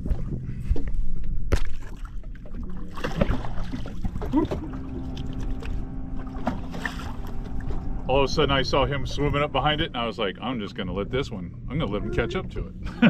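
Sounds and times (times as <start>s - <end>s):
wind rumbling on microphone: 0.0s - 1.6s
water sloshing against boat: 0.0s - 13.0s.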